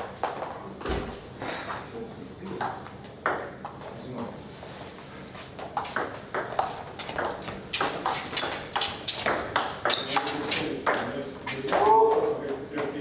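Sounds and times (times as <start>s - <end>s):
ping pong ball bouncing on table: 2.6s - 3.8s, 6.0s - 8.2s, 8.8s - 10.2s
ping pong ball hitting rackets: 2.6s - 3.8s, 5.7s - 11.1s.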